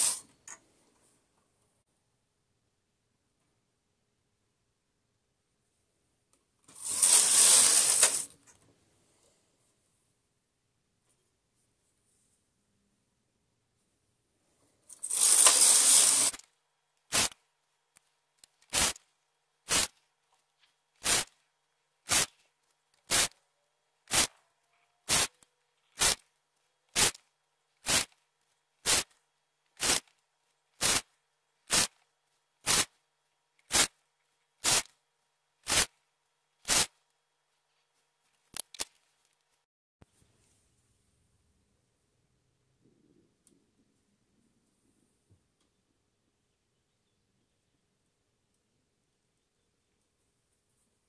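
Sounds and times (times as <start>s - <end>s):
short sharp knitting machine sounds: 0.0s - 0.3s, 6.7s - 8.4s, 14.9s - 16.5s, 25.1s - 25.4s, 27.8s - 28.2s, 29.8s - 30.1s, 30.8s - 31.1s, 34.6s - 34.9s
knitting machine carriage rasp: 6.7s - 8.4s, 15.0s - 16.4s.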